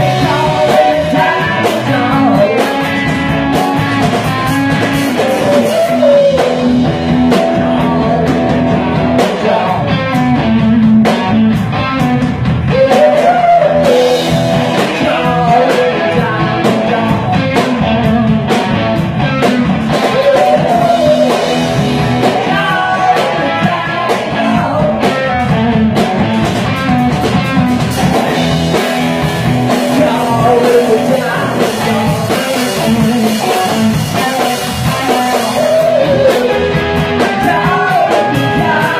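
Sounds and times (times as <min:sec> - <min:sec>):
man singing into a microphone: 0:00.0 - 0:03.4, 0:04.4 - 0:11.1, 0:12.7 - 0:18.6, 0:19.9 - 0:25.8, 0:29.7 - 0:38.9
rock band playing: 0:00.0 - 0:38.9.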